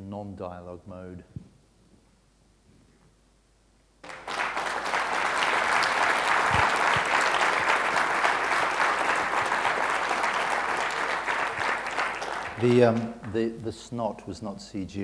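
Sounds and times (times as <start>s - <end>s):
audience applauding: 4.0s - 13.7s.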